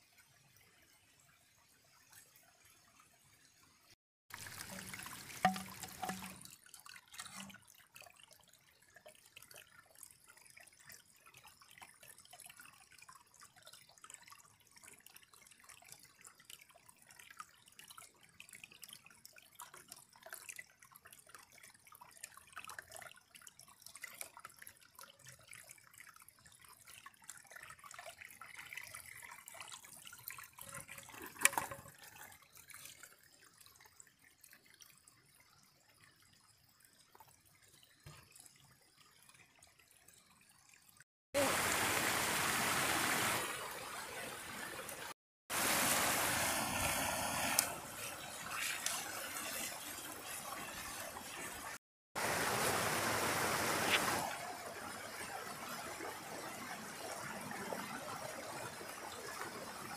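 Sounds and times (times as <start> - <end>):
water trickling and dripping: 0.0 - 59.9.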